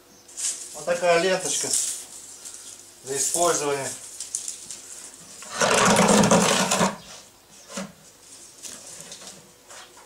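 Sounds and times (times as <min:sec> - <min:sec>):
wooden box scraping on pavement: 0:05.3 - 0:08.0.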